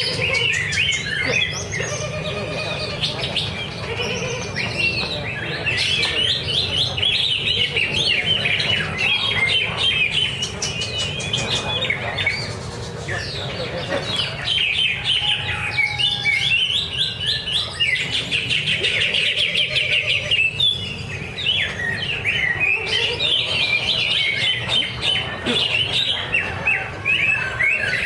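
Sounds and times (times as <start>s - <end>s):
bird chirping and whistling: 0.0s - 12.5s, 14.3s - 28.0s.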